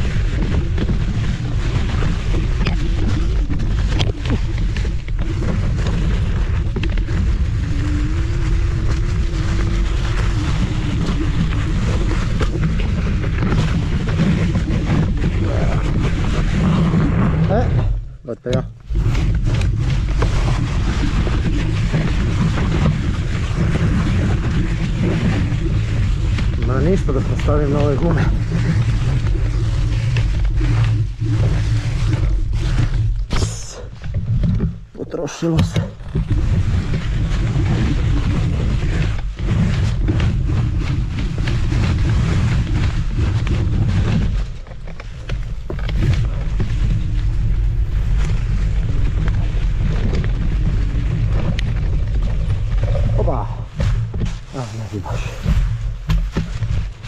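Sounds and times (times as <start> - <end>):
wind buffeting microphone: 0.0 - 35.0
scooter tyres rumbling on dirt: 0.0 - 57.0.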